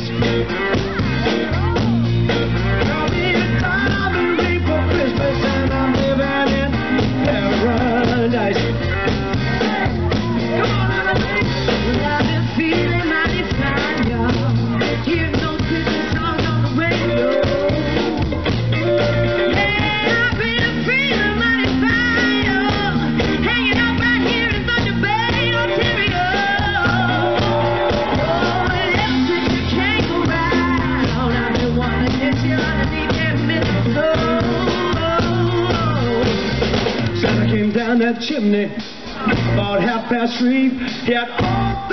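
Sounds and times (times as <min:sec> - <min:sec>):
electric guitar bending notes: 0:00.0 - 0:38.0
blues rock band playing: 0:00.0 - 0:41.9.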